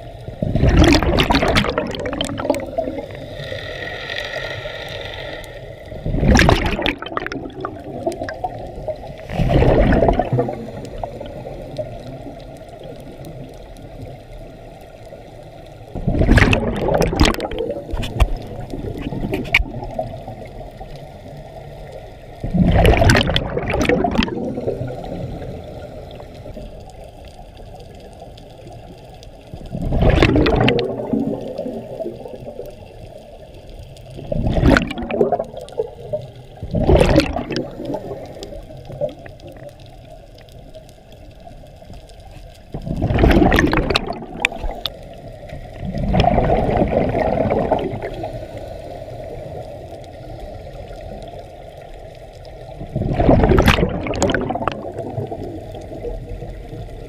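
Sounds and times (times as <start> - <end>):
bubbling exhaled air: 0.0 - 14.2, 15.9 - 20.9, 22.4 - 26.8, 29.6 - 32.9, 34.0 - 39.9, 42.7 - 51.4, 52.5 - 57.0
regulator hiss underwater: 0.0 - 21.8, 34.4 - 39.6, 42.8 - 51.6.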